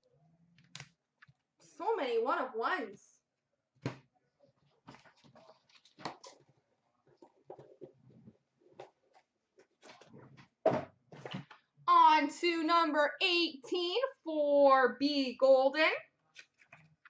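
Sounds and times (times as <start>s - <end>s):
cards and packaging rustling: 4.8s - 8.0s, 16.3s - 17.0s.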